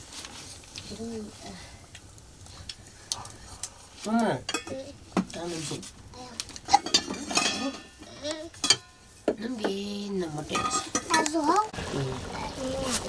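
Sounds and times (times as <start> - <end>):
metal utensils clinking on pots: 4.2 - 5.5, 6.5 - 11.5
people talking: 9.4 - 13.0.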